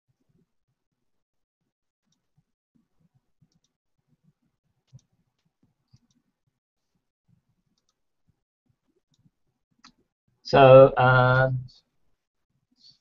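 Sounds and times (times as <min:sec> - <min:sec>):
computer mouse clicks: 0:03.4 - 0:03.8, 0:04.8 - 0:06.3, 0:07.7 - 0:08.0.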